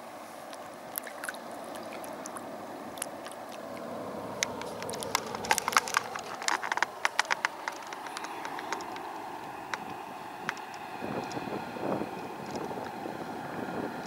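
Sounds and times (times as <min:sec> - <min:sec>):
rushing water: 0:00.0 - 0:14.0
water splashing around feet: 0:00.4 - 0:14.0
sharp crackling clicks: 0:00.5 - 0:11.5.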